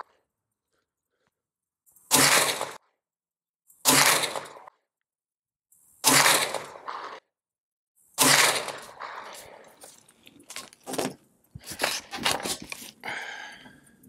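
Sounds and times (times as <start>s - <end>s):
gunshot: 2.1s - 2.9s, 3.8s - 4.8s, 6.0s - 7.3s, 8.2s - 9.7s.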